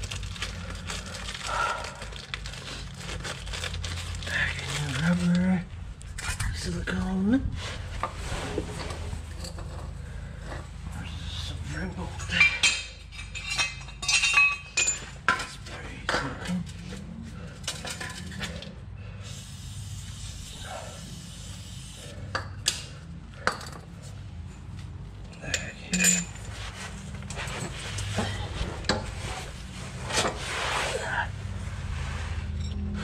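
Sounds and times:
steady low hum: 0:00.0 - 0:33.0
metal tools clinking on concrete: 0:09.4 - 0:10.6, 0:12.1 - 0:18.7, 0:23.4 - 0:23.9, 0:24.5 - 0:29.0.

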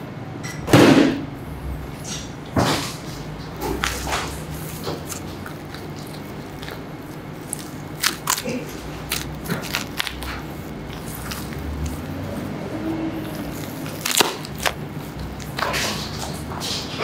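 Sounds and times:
steady low hum: 0:00.0 - 0:17.0
knife cutting meat crackling: 0:03.6 - 0:17.0.

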